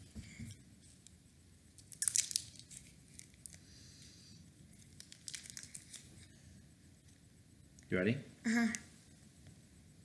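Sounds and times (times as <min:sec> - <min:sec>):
candy wrapper crinkling: 0:01.7 - 0:03.7, 0:04.6 - 0:06.3.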